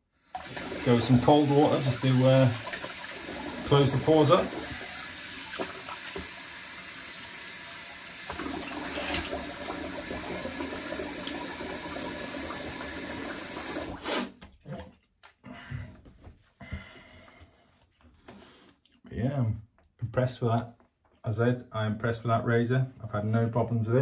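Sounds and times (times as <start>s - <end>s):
tap running into sink: 0.4s - 6.4s, 8.2s - 13.9s.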